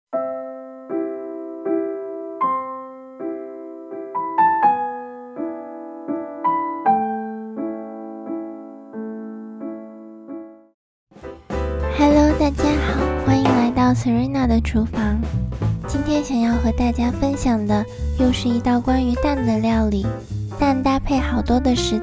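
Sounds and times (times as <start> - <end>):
soft piano chords: 0.1 - 14.3.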